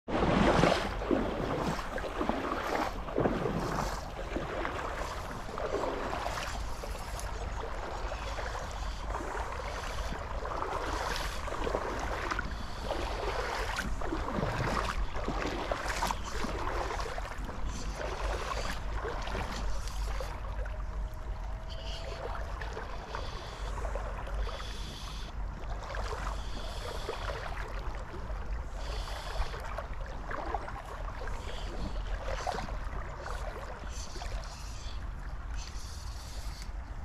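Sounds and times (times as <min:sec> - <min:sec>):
shallow river water flowing: 0:00.0 - 0:37.0
small water splashes: 0:00.0 - 0:37.0
wind rumble on microphone: 0:00.1 - 0:23.0.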